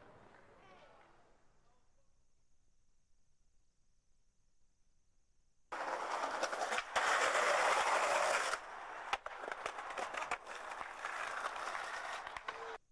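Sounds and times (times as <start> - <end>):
skateboard wheels rolling on concrete: 5.7 - 12.8.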